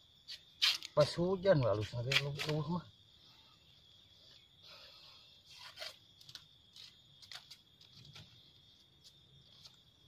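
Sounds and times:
knife scraping and tearing husk: 0.3s - 1.0s, 5.5s - 8.2s.

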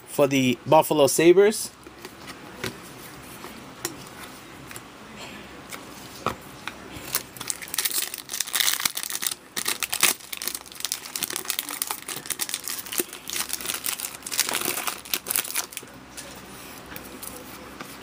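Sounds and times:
foil wrapper crinkling and tearing: 7.1s - 15.8s.

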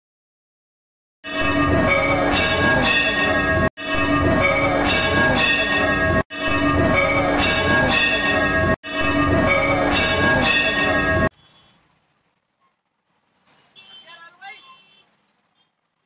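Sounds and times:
bells ringing: 1.3s - 11.3s.

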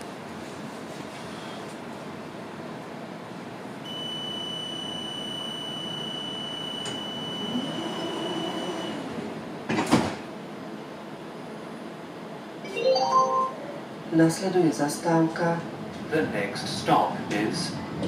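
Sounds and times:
door warning beep: 3.9s - 9.0s
tram running hum: 5.8s - 12.6s, 13.6s - 18.0s.

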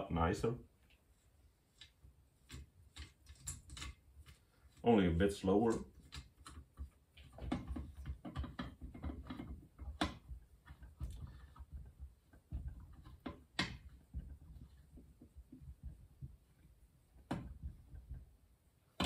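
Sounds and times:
small metal clicks and knocks: 1.7s - 4.8s, 5.4s - 16.0s.

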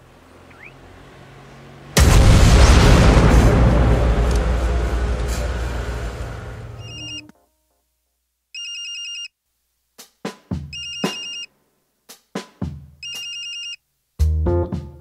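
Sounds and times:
film score music with drum hits: 2.0s - 7.1s
electronic phone ringtone: 6.8s - 7.3s, 8.6s - 9.3s, 10.7s - 11.5s, 13.0s - 13.8s.

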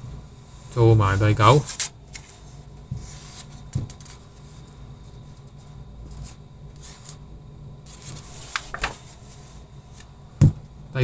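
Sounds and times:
paper rustling: 7.9s - 10.1s.

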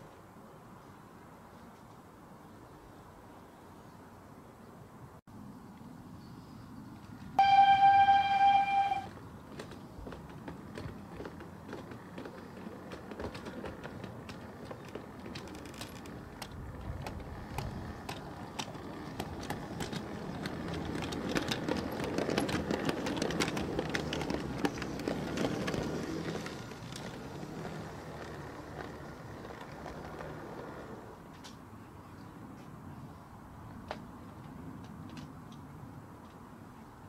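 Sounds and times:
train passing: 7.4s - 31.3s.

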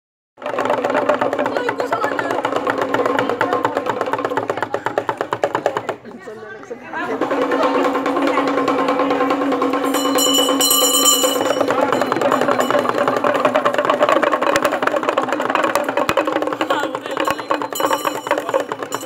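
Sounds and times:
drum beaten fast: 0.4s - 6.1s, 7.0s - 19.0s
bright metallic ringing: 9.8s - 13.3s
steady held tone: 9.8s - 14.4s.

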